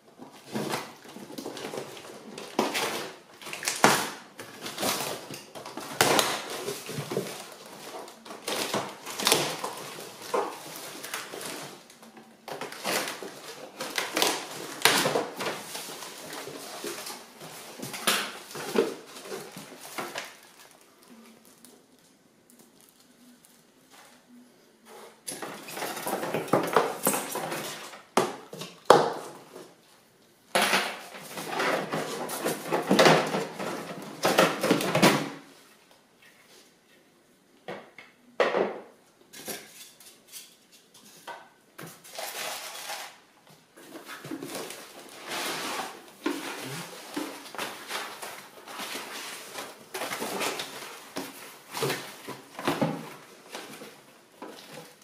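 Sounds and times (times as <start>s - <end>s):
packaging crackling and rustling: 0.3s - 23.9s, 42.0s - 55.0s.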